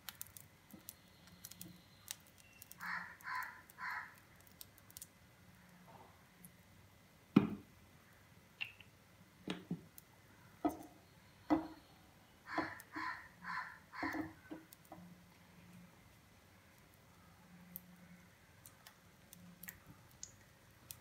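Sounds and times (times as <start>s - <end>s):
short calls: 12.4s - 14.4s.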